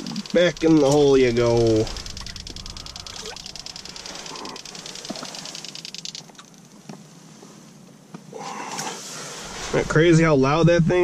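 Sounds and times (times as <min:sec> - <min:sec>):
sonar pinging underwater: 0:00.0 - 0:06.3.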